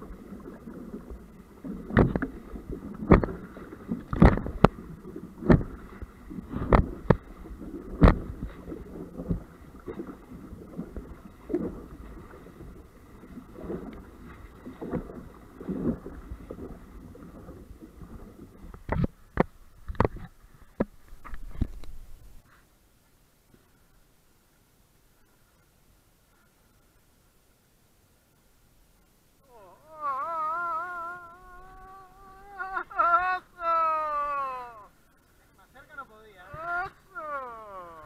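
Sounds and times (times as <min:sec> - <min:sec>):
water rushing past hull: 0:00.0 - 0:22.5, 0:23.7 - 0:38.0
waves slapping hull: 0:00.0 - 0:22.6, 0:29.4 - 0:38.0.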